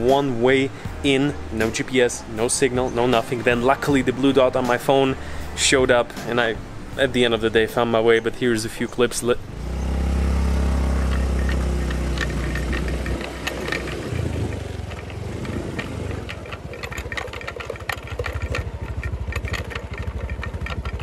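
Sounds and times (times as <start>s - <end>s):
scooter body rattling: 8.6s - 21.0s
scooter engine running: 9.5s - 21.0s.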